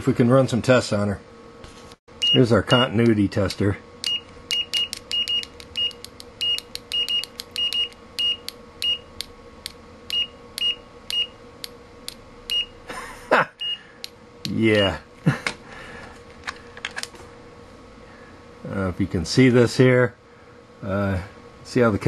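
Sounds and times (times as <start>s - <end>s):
multimeter continuity beeps: 2.2s - 3.0s, 4.0s - 9.3s, 10.1s - 11.4s, 12.5s - 12.8s, 13.6s - 14.1s
test lead clicks: 4.0s - 12.7s.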